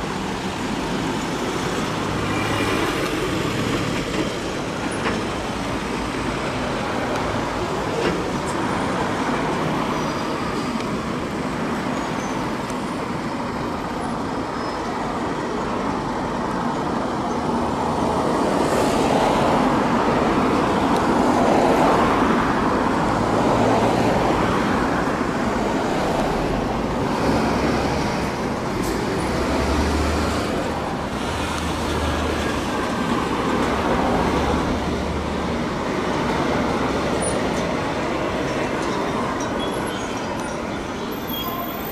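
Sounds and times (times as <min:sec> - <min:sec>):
cars driving past: 0:17.5 - 0:41.9.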